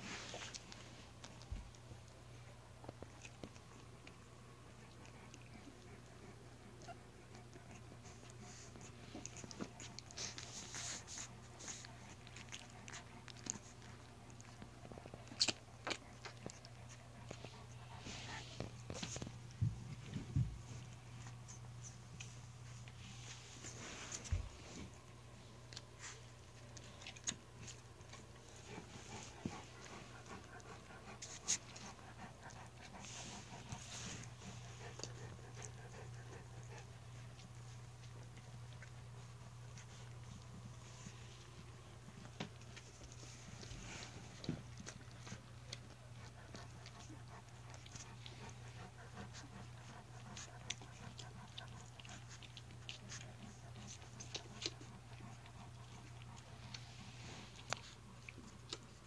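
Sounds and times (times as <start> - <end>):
puppies breathing and whimpering: 0.0 - 59.0.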